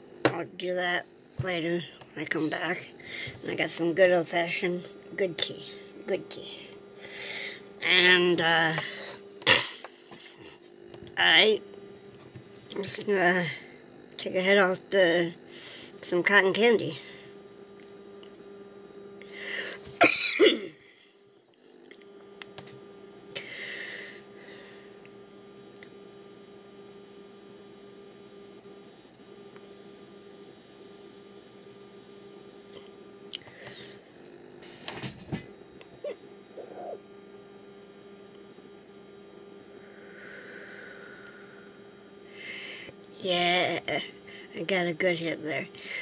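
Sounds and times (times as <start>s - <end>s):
steady low hum: 0.0s - 46.0s
breathy exhale: 7.0s - 7.6s, 19.3s - 19.8s, 39.8s - 42.9s
man coughing: 9.4s - 9.9s, 20.0s - 20.8s.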